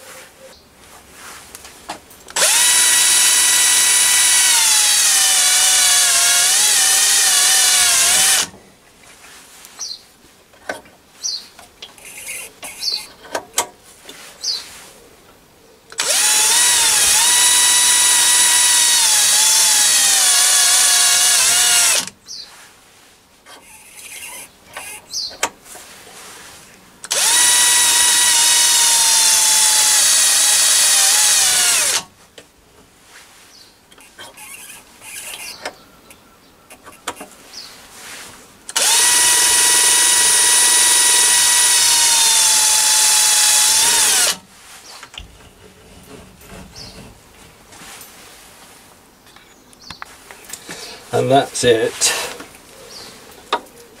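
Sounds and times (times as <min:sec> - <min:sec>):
cordless drill whining: 0:02.3 - 0:08.5, 0:12.0 - 0:13.0, 0:15.9 - 0:22.1, 0:23.6 - 0:25.3, 0:27.0 - 0:32.1, 0:34.0 - 0:35.7, 0:38.7 - 0:44.4.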